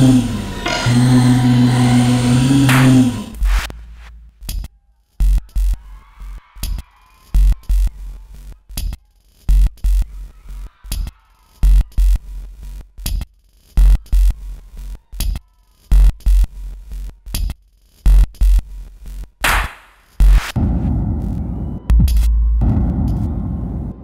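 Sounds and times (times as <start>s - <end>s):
drum machine beat: 4.4s - 5.8s, 7.4s - 8.0s, 8.7s - 10.1s, 11.6s - 14.4s, 15.2s - 16.7s, 17.4s - 20.6s.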